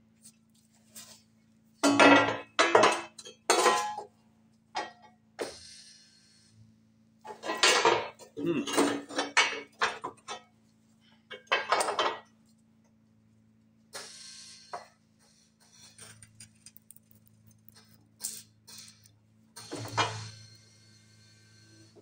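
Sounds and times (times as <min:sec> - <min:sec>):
metal creaking and clanking: 0:15.6 - 0:20.4.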